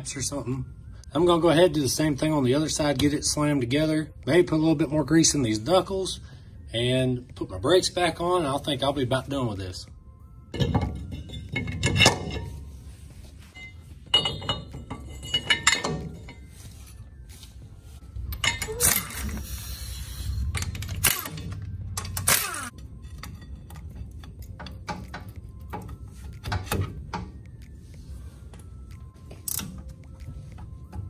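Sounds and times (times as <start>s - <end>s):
metal brake parts clinking: 10.5s - 12.6s, 13.5s - 17.0s, 18.2s - 19.4s, 20.5s - 27.3s.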